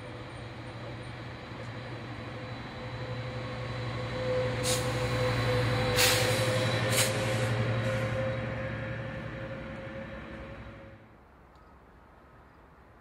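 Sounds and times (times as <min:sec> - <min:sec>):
diesel train engine hum: 0:00.0 - 0:11.2
air brake hisses: 0:04.6 - 0:05.2, 0:05.9 - 0:08.2.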